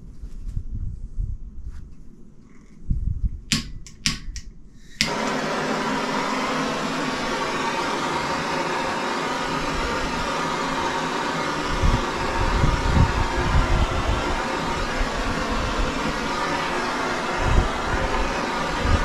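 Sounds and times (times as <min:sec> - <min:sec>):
sharp clicks: 0:03.5 - 0:05.2
gas torch flame hissing: 0:03.5 - 0:19.0.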